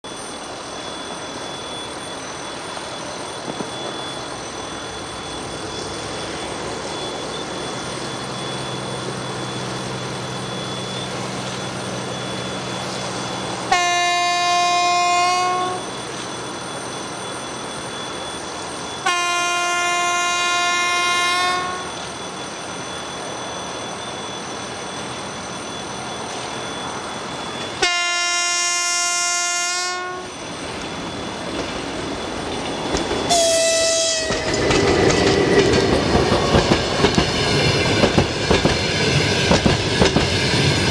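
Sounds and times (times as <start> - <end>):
train coaches clattering on rails: 0.0 - 40.9
locomotive horn blasts: 13.7 - 15.9, 19.0 - 21.9, 27.8 - 30.3, 33.3 - 34.5.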